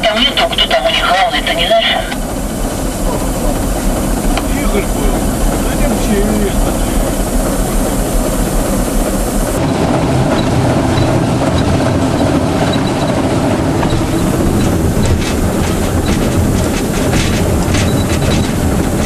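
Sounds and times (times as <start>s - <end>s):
diesel locomotive running: 0.0s - 19.0s
wheels clicking over rail joints: 10.3s - 19.0s.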